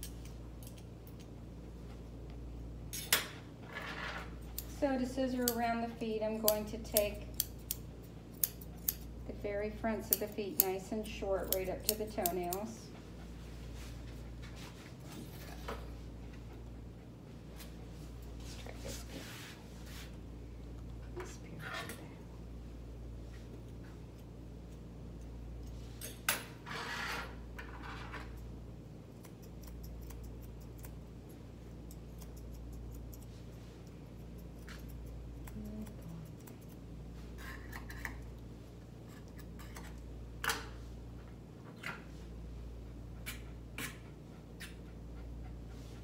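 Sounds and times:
scissors snipping hair: 0.0 - 1.4, 4.4 - 13.0, 29.1 - 38.4, 39.1 - 40.1, 43.2 - 44.8
low steady hum: 0.0 - 46.0.

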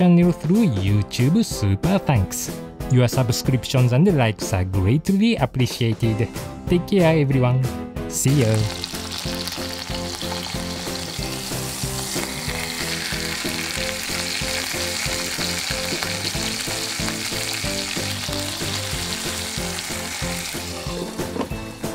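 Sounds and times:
background music with beat: 0.0 - 21.9
chicken sizzling in oil: 8.2 - 21.2.

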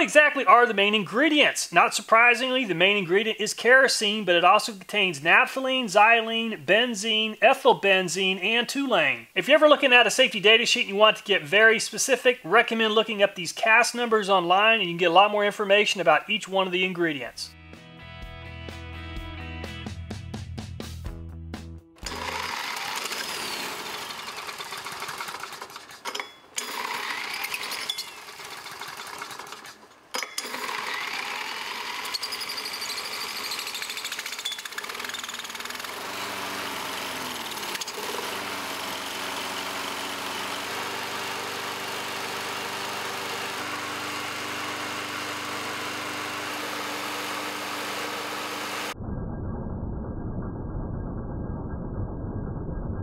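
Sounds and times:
small engine clattering: 22.0 - 48.9.

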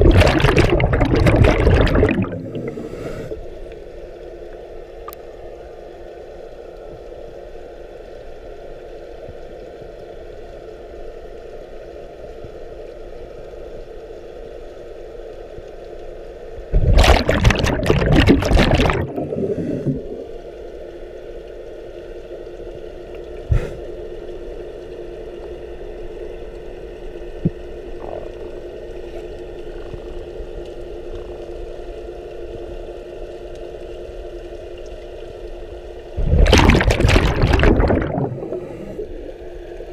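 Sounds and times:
scuba regulator exhaust bubbles: 0.0 - 3.4, 16.7 - 20.5, 27.4 - 30.2, 36.1 - 39.3
steady underwater hum: 0.0 - 39.9.

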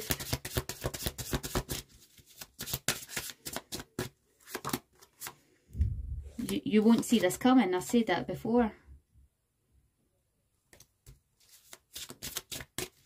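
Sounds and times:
cards being shuffled: 0.0 - 5.4, 10.7 - 13.0
cards clicking and slapping: 0.0 - 5.4, 10.7 - 13.0.

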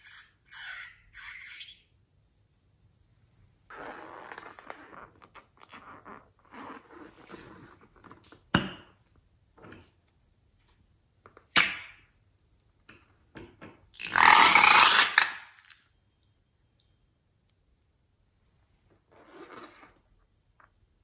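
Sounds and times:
balloon squeezed and rubbed: 3.7 - 8.0, 14.0 - 15.7.

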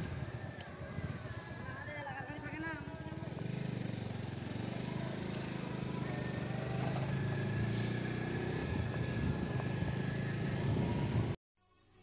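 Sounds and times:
motorcycle engine running: 2.8 - 7.7.

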